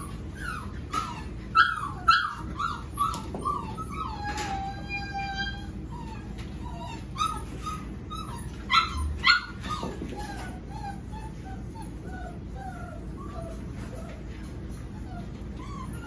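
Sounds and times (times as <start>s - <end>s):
puppies whining and whimpering: 0.0s - 16.0s.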